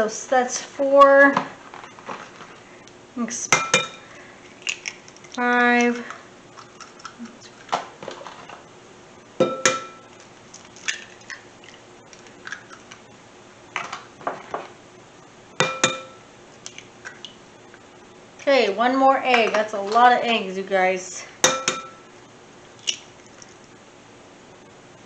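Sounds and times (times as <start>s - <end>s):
bowl ringing: 9.4s - 10.1s, 15.6s - 16.3s, 21.5s - 22.1s
eggshell clicking apart: 10.2s - 13.0s
egg tapping on ceramic bowl: 15.6s - 16.2s.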